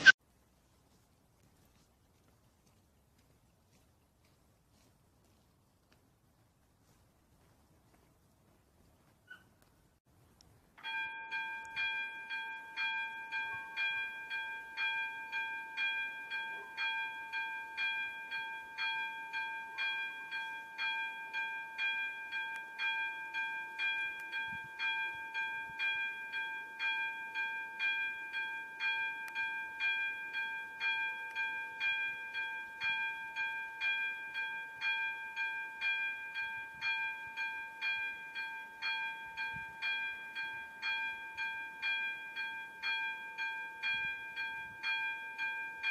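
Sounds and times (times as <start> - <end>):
level crossing warning bell: 10.8 - 45.9
steady bell-like tone: 10.8 - 45.9.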